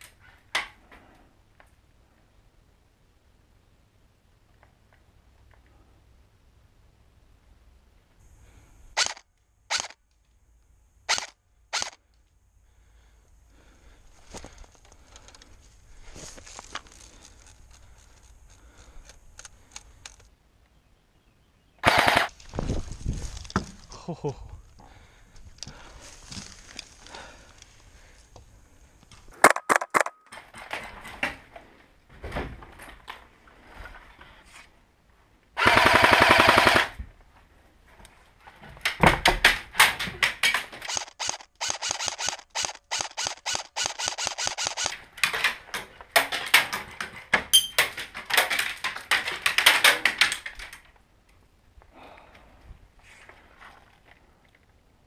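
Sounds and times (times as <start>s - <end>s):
airsoft gunfire: 21.8s - 22.3s, 35.6s - 37.0s, 40.9s - 45.0s.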